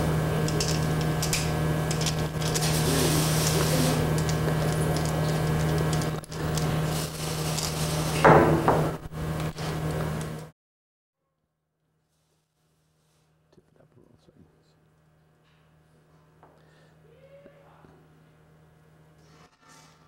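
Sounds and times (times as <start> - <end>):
steady low hum: 0.0 - 10.5.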